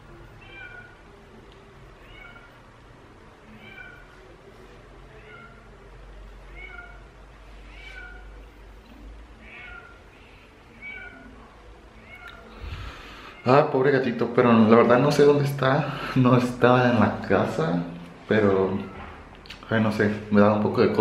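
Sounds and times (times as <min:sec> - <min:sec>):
cat meowing faintly: 0:00.3 - 0:01.1, 0:02.0 - 0:02.6, 0:03.4 - 0:04.5, 0:05.1 - 0:05.8, 0:06.5 - 0:08.6, 0:09.4 - 0:13.7, 0:18.5 - 0:19.3.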